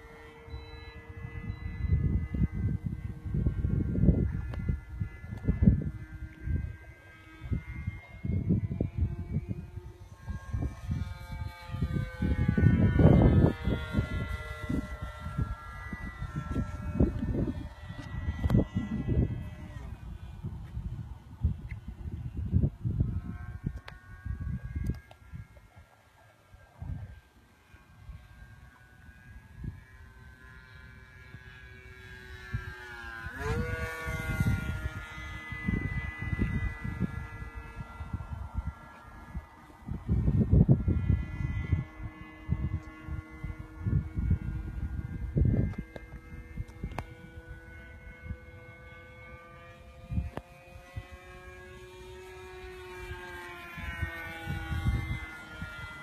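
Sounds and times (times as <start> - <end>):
wind buffeting microphone: 0.0 - 25.9, 26.5 - 56.0
model plane motor whining: 0.0 - 56.0.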